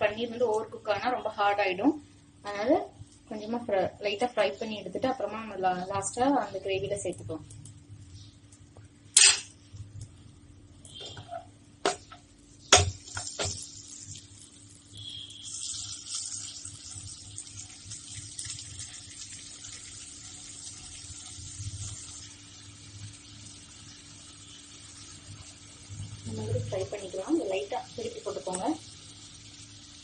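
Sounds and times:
butter sizzling in a hot pan: 0:12.4 - 0:30.0.

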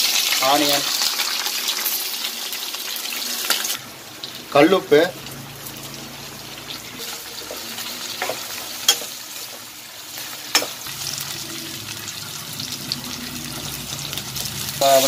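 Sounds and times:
onions sizzling in hot oil: 0:00.0 - 0:15.0
spoon tapping on pan: 0:10.5 - 0:10.8.

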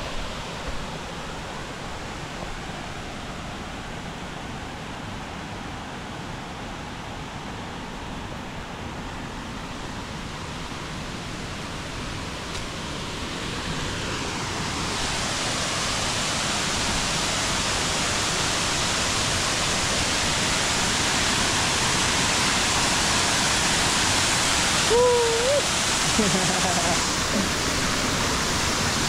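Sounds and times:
waterfall rushing: 0:10.4 - 0:29.0.

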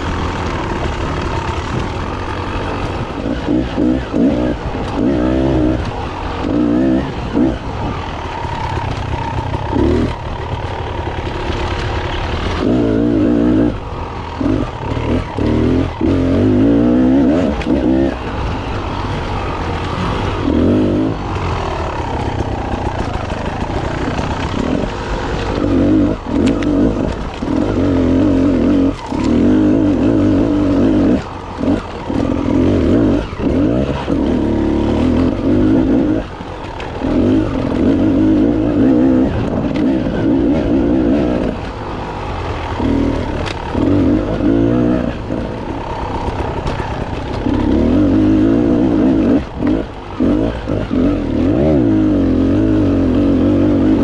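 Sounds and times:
knocks and clatter over rocks: 0:00.0 - 0:05.1, 0:05.7 - 0:12.6, 0:21.2 - 0:51.9
dirt bike engine revving: 0:00.0 - 0:54.0.

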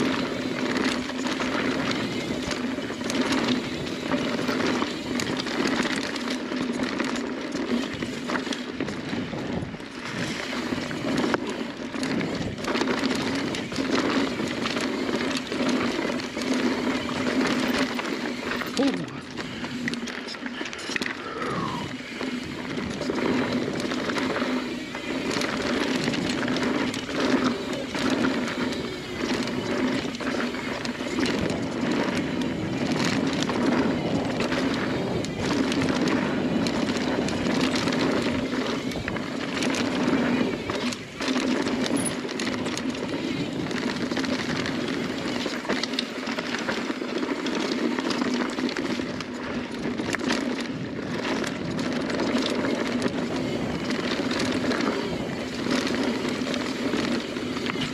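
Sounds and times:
bike rattling over bumps: 0:00.0 - 0:57.9
bike tyres on dirt: 0:00.0 - 0:57.9.

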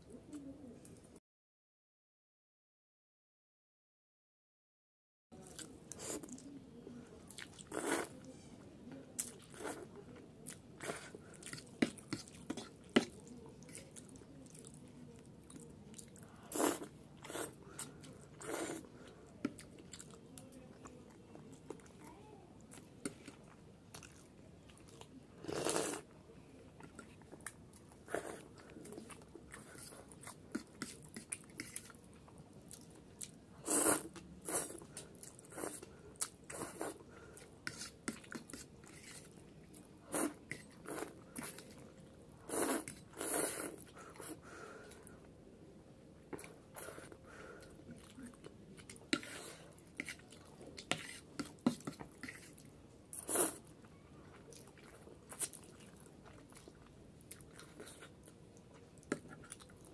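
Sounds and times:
loud noodle slurps: 0:16.5 - 0:17.6, 0:25.4 - 0:26.0, 0:33.6 - 0:34.8, 0:42.5 - 0:44.4, 0:53.2 - 0:53.6.

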